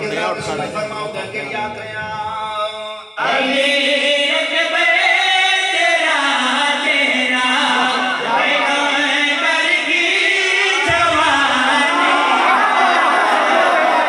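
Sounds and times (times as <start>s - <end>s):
man chanting over loudspeaker: 0.0s - 13.6s.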